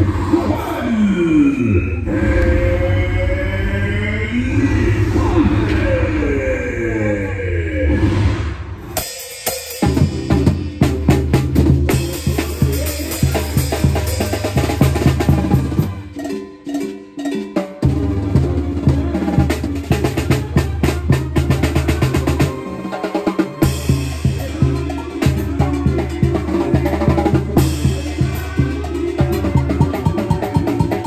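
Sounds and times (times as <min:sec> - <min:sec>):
low bass line: 0:01.8 - 0:08.3
drum and cymbal struck rapidly: 0:08.9 - 0:31.0.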